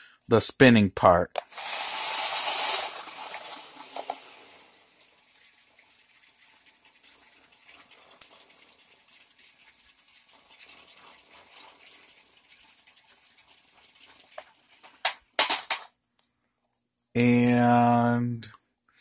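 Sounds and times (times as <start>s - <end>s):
loud clatters: 1.4s - 4.8s, 10.6s - 15.9s
toy car wheels patter on concrete: 1.4s - 15.9s.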